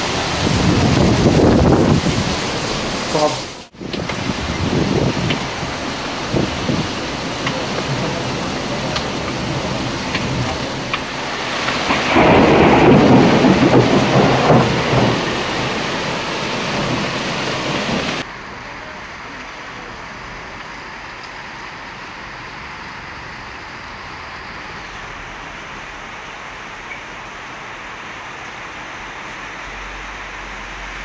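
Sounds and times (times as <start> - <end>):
thunder rumbling: 0.0 - 18.3
heavy rain pouring: 0.0 - 31.0.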